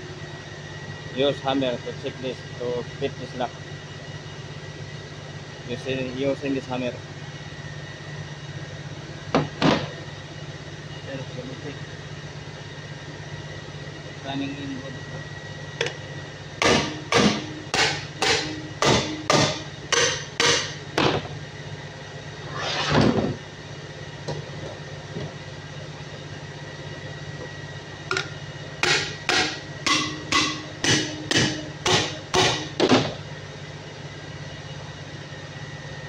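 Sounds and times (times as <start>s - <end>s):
hammer striking steel: 16.6s - 21.1s, 28.1s - 32.9s
metal scrape: 22.4s - 23.2s.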